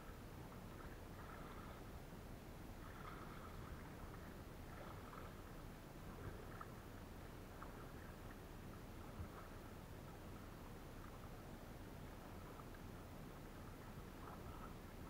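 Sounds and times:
paddle splashing in water: 0.4 - 1.9, 2.7 - 11.4, 12.0 - 15.0.

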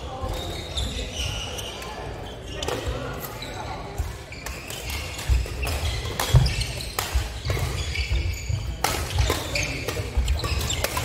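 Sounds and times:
sports shoes squeaking: 0.0 - 11.0
rackets hitting shuttlecock: 4.0 - 11.0.

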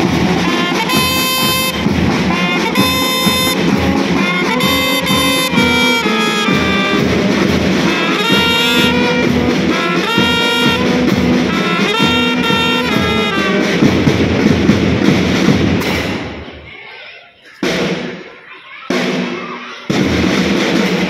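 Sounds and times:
brass held chords: 0.0 - 14.2
marching drums: 0.0 - 16.8, 17.6 - 21.0.

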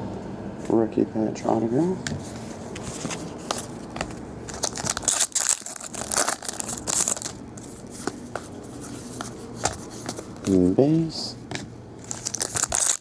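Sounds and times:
foil wrapper tearing and crinkling: 4.5 - 7.4, 12.0 - 13.0.

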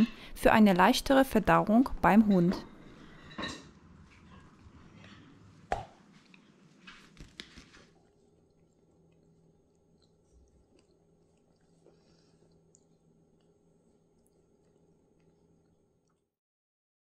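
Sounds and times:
faint room hum: 0.0 - 16.4.

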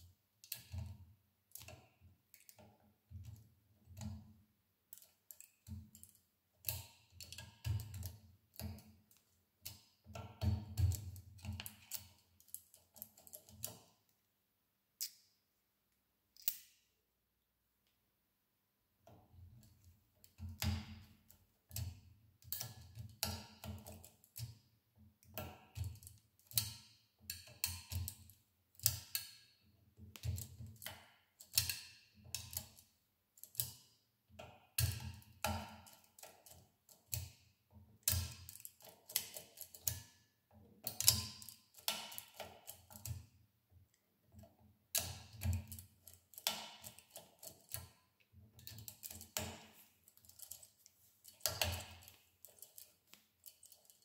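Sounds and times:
pick tool clicking in lock: 16.4 - 16.8, 38.0 - 40.1, 40.8 - 43.2.

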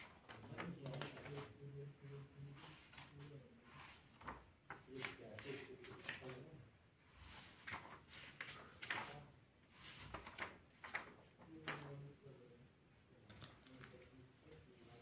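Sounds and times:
paper pages rustling: 0.0 - 1.6, 2.5 - 6.4, 7.2 - 12.0.

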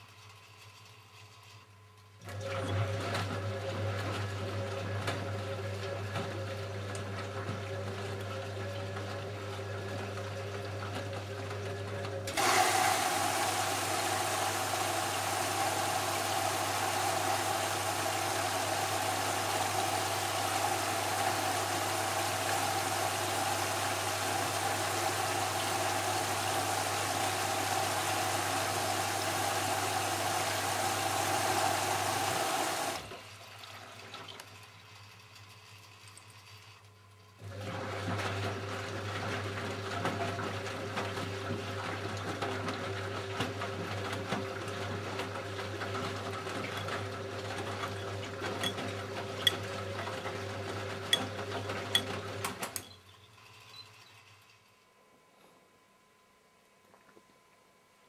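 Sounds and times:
washing machine humming: 0.0 - 54.7
water rushing in: 12.4 - 33.1.

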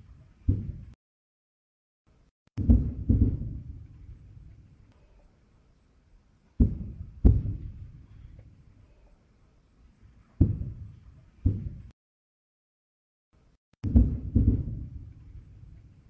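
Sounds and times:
distant artillery booms: 2.6 - 4.4, 6.6 - 8.3, 10.4 - 11.9, 13.8 - 15.5.

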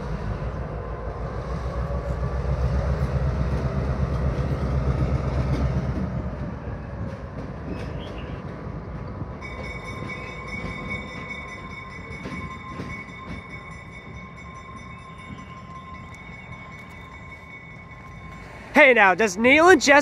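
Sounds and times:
diesel locomotive rumble: 0.0 - 20.0.

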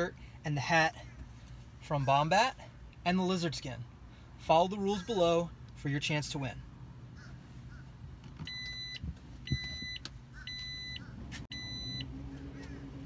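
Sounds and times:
low steady hum: 0.0 - 13.0
short electronic beeps: 8.5 - 12.1.

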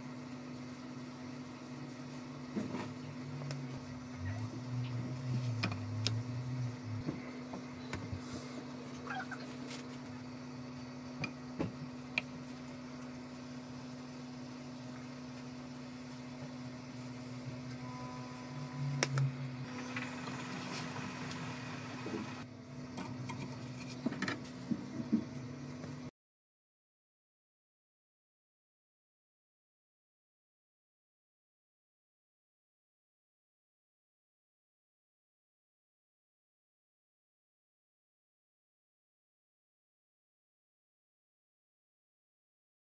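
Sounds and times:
motor or fan humming: 0.0 - 26.1.

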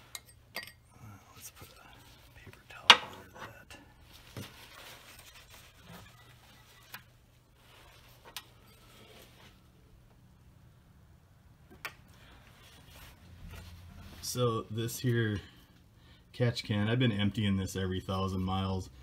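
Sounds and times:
rag rustling: 1.5 - 9.7.

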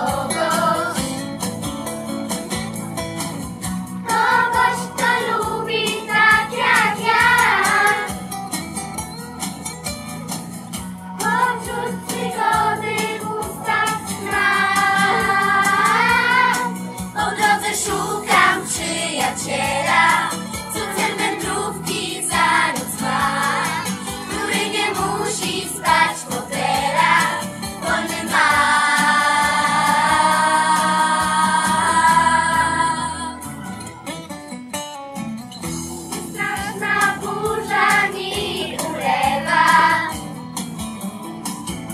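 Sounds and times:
voices singing together: 0.0 - 1.4, 4.0 - 8.2, 11.2 - 33.5, 36.1 - 40.3
low musical accompaniment: 0.0 - 41.9
plucked guitar notes: 14.7 - 16.6.

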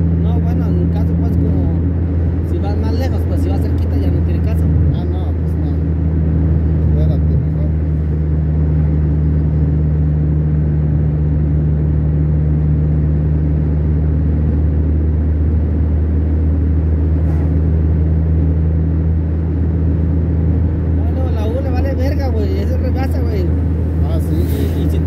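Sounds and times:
car engine drone: 0.0 - 25.0.

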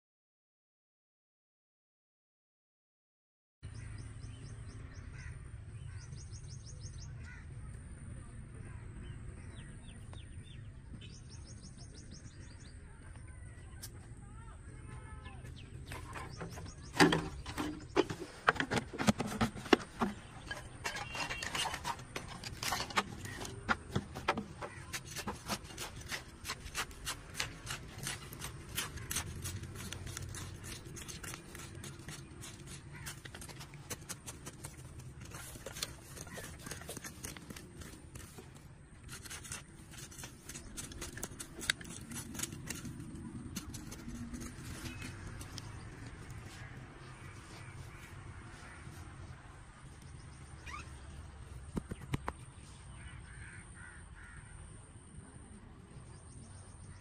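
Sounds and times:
hand tool digging dry soil: 15.8 - 48.8.

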